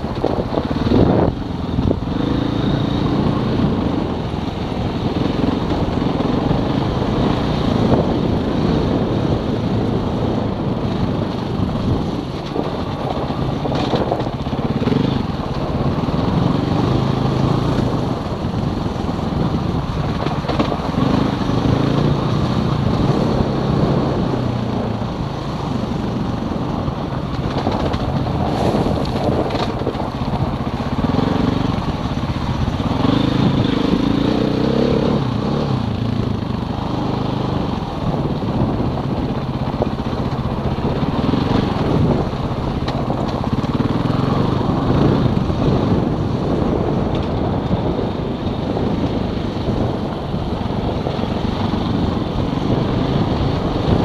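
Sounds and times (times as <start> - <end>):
motorcycle engine revving: 0.0 - 54.0
wind and road noise: 0.0 - 54.0.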